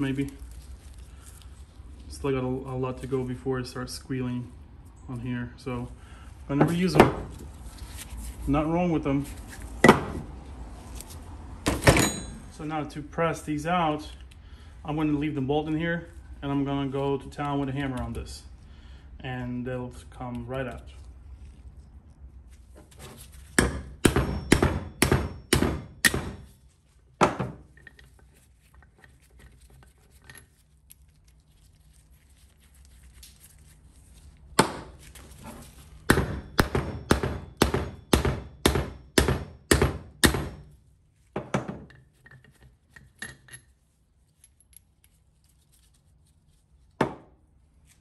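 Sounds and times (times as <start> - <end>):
hammer striking metal bolt: 11.7 - 12.4, 23.6 - 26.4.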